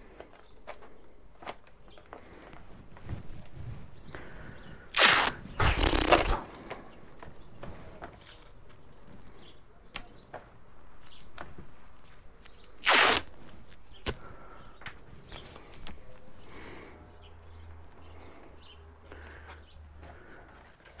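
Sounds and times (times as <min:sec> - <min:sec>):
masking tape ripping: 0:04.9 - 0:06.6, 0:12.7 - 0:14.2.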